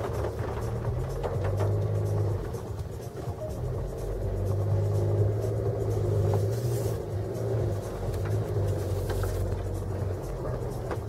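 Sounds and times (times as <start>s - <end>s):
small knocks and rattles: 0.0s - 4.1s
cabin rumbling: 0.0s - 11.0s
car engine at low revs: 0.0s - 11.0s.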